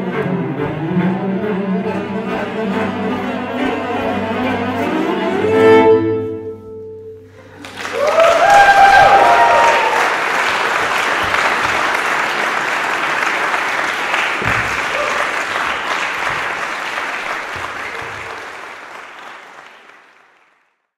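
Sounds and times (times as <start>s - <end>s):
audience applauding: 7.4s - 20.9s.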